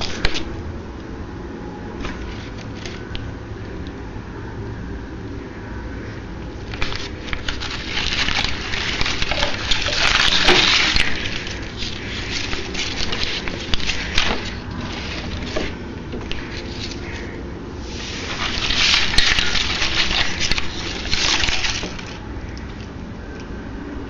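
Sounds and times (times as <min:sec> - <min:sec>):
crackling and rustling noise: 0:00.0 - 0:01.1, 0:01.7 - 0:04.0, 0:06.0 - 0:24.0.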